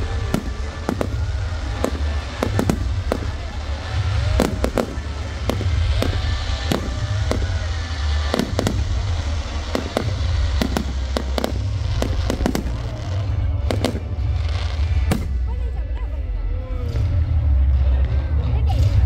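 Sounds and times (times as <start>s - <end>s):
fireworks bangs and cracks: 0.0s - 16.0s
deep rumble: 0.0s - 19.0s.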